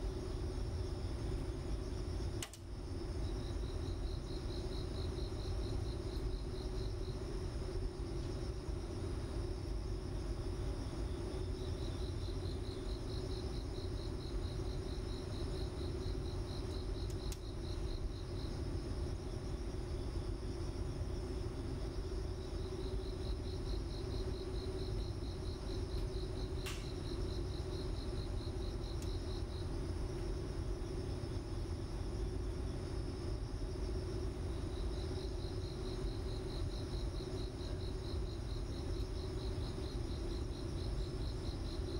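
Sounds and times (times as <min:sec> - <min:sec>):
sharp click: 0:02.4 - 0:02.6, 0:26.6 - 0:27.0.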